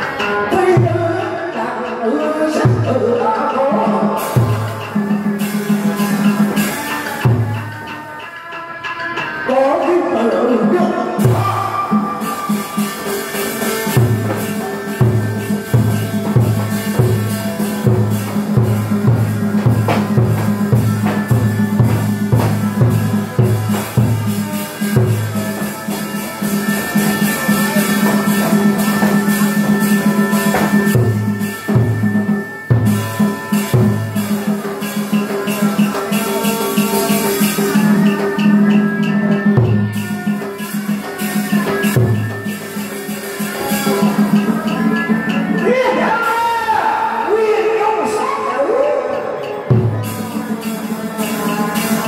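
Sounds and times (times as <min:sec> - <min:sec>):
held instrumental tones: 0:00.0 - 0:52.0
sharp percussion strikes: 0:00.0 - 0:52.0
heavy drum stroke: 0:11.2 - 0:47.2
low drum beating: 0:13.9 - 0:25.5.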